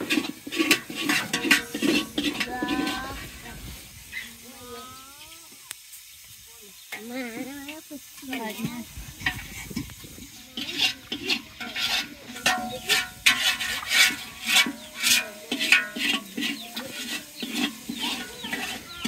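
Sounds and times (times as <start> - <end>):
spoon scraping cooking pot: 0.0 - 3.4, 9.2 - 19.0.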